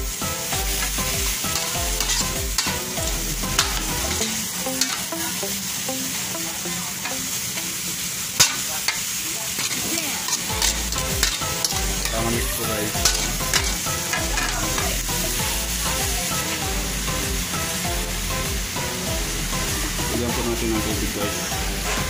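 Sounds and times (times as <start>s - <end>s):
food sizzling in a wok: 0.0s - 22.0s
metal ladle scraping pan: 0.8s - 5.2s, 8.4s - 15.3s.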